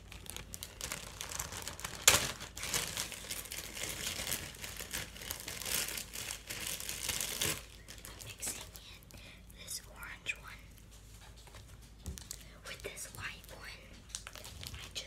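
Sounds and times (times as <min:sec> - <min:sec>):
slime crackling by hand: 0:00.0 - 0:08.8.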